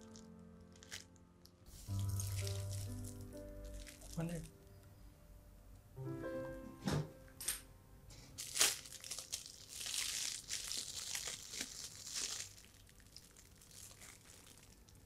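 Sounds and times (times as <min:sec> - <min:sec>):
foil gift wrap crinkling: 0:00.0 - 0:04.5, 0:08.4 - 0:15.0.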